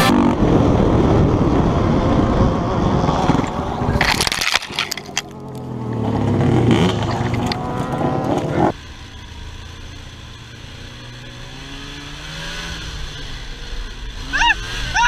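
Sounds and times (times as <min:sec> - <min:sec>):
atv engine running hard: 0:00.0 - 0:15.0
snowmobile engine running: 0:00.0 - 0:15.0.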